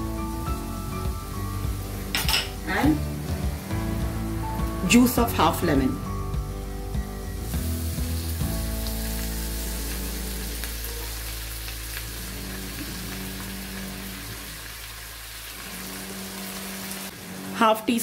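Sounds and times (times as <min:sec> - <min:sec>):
onions sizzling in oil: 0:00.0 - 0:06.0, 0:06.9 - 0:17.6
soft background music: 0:00.0 - 0:14.4.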